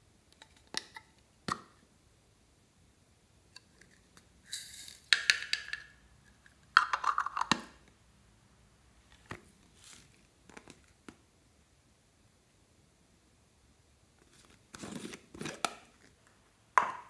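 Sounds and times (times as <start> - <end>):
plastic lid clicking and rattling: 6.8 - 7.8.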